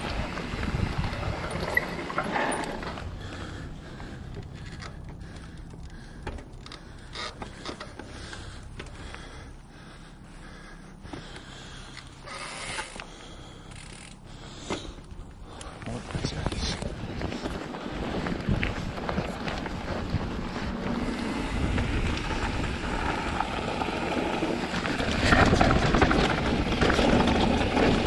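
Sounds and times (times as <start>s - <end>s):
bike rattling over bumps: 0.0s - 15.9s, 16.5s - 28.0s
low steady rumble: 0.0s - 28.0s
tyres crunching over dirt and stones: 14.7s - 28.0s.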